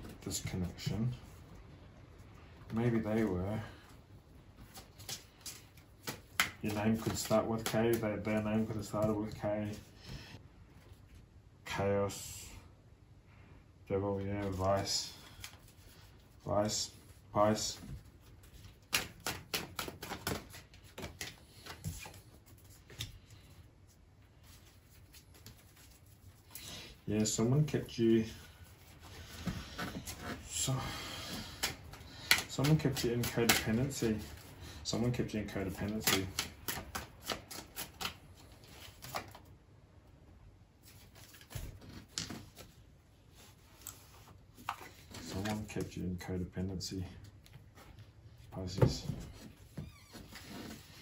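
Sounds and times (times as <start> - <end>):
cards flicking and snapping: 4.7 - 8.1, 18.5 - 23.3, 31.5 - 34.3, 35.7 - 39.4.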